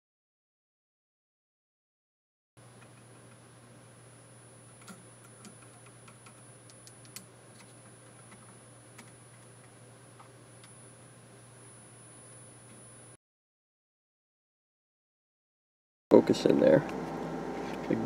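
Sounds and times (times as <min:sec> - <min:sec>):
faint high whine: 0:02.6 - 0:13.2
low steady hum: 0:02.6 - 0:13.2.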